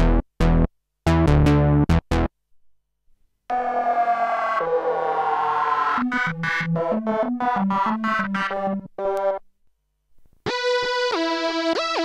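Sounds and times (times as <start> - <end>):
buzzy synthesizer tone: 3.5 - 8.9
synthesizer plucked notes: 3.5 - 9.4
synthesizer bouncing bass line: 6.0 - 9.4.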